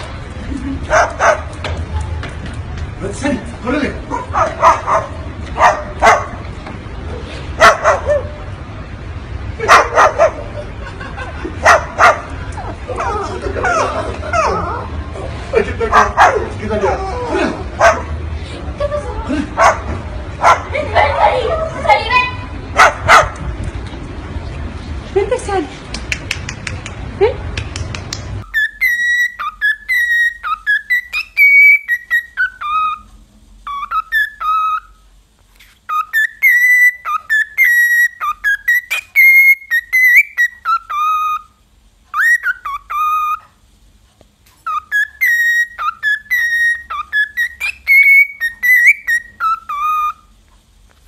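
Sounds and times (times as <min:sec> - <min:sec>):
cockatiel whistling a tune: 0:28.4 - 0:33.0, 0:33.6 - 0:35.0, 0:35.9 - 0:43.4, 0:44.6 - 0:50.3.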